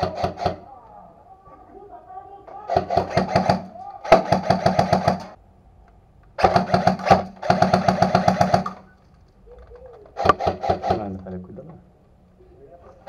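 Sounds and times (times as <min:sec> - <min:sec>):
airsoft rifle firing full auto: 0:00.0 - 0:00.7, 0:02.6 - 0:05.4, 0:06.4 - 0:08.9, 0:10.2 - 0:11.1.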